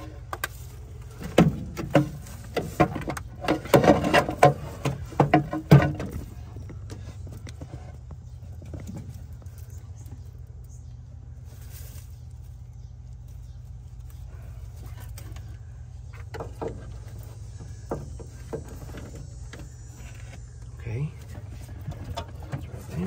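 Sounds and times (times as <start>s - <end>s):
low mechanical drone: 0.0s - 23.0s.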